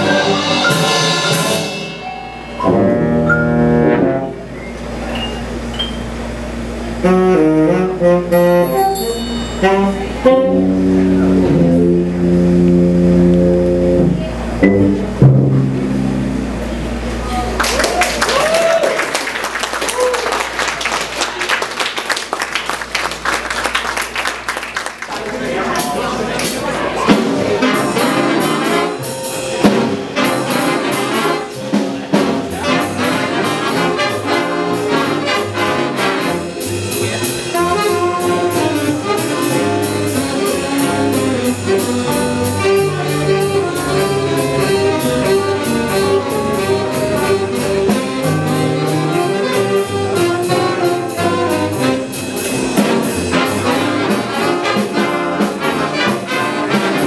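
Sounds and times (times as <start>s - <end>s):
trumpets and saxophones: 0.0s - 4.6s, 6.9s - 16.6s, 27.1s - 57.0s
drums keeping a beat: 0.0s - 4.7s, 18.4s - 57.0s.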